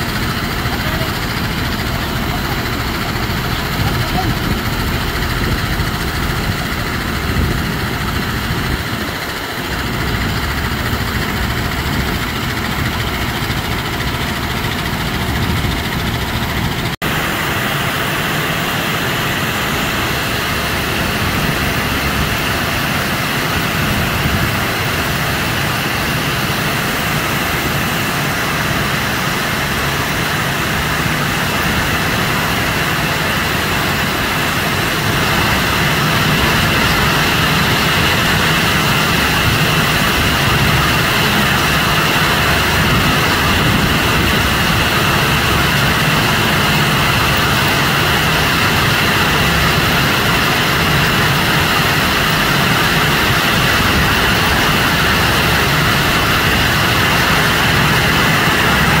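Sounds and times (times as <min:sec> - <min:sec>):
belt conveyor running: 0:00.0 - 0:59.0.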